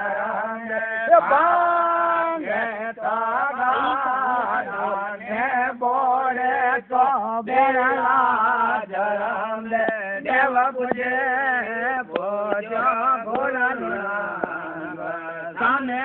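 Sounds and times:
man singing a chant: 0.0s - 16.0s
sharp taps: 9.8s - 11.2s, 12.1s - 14.7s.

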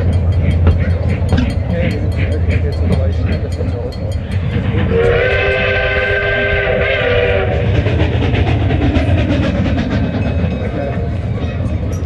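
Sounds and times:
train clickety-clack on rails: 0.0s - 12.0s
train whistle blowing: 4.9s - 7.6s.

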